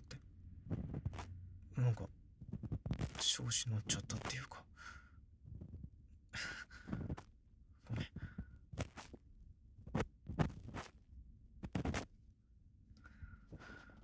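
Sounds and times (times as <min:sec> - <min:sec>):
ear pick scraping: 0:00.6 - 0:01.4, 0:02.4 - 0:04.4, 0:05.4 - 0:06.0, 0:06.7 - 0:07.3, 0:07.9 - 0:09.2, 0:09.8 - 0:11.0, 0:11.6 - 0:12.1.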